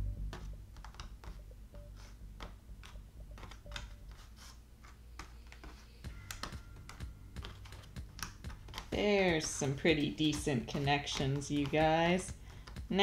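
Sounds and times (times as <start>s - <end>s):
jigsaw pieces clicking: 6.3s - 8.9s, 10.3s - 11.8s.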